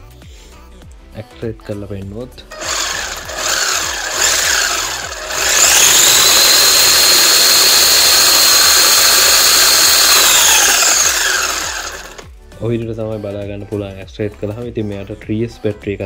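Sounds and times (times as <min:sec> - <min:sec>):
toy truck electric motor whine: 0:02.5 - 0:12.2.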